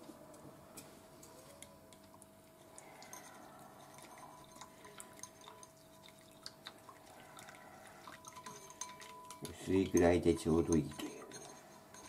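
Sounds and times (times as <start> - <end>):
utensils clinking in a ceramic bowl: 1.2 - 12.0
liquid swishing: 2.5 - 12.0.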